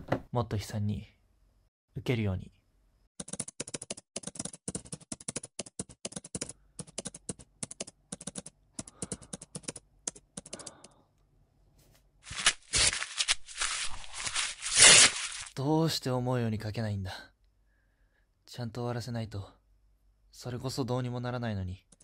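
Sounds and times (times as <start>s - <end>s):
fast keyboard typing: 3.2s - 11.0s
loud rustling: 12.3s - 15.5s.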